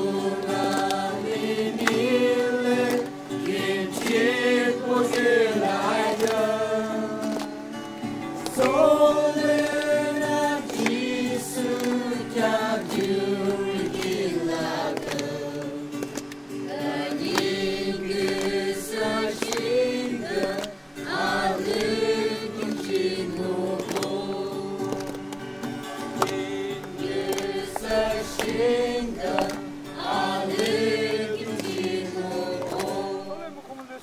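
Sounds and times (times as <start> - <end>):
choir singing: 0.0 - 16.0, 16.6 - 25.2, 26.0 - 33.6.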